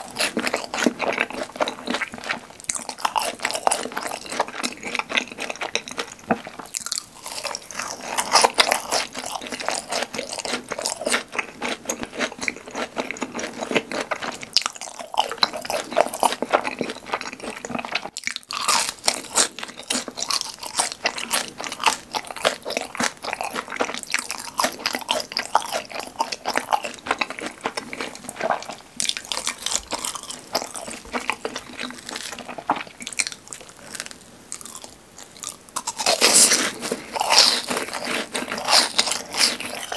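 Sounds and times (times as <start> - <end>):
crunching and chewing food: 0.0 - 39.9.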